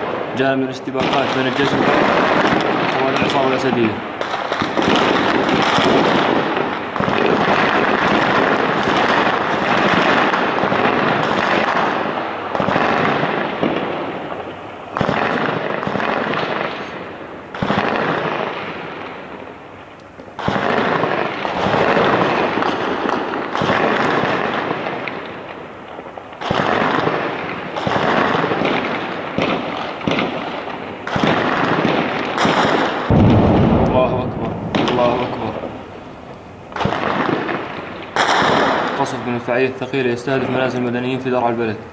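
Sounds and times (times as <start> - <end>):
loud gunfire volleys or blasts: 0.0 - 41.7
crackling gunfire: 0.0 - 41.8.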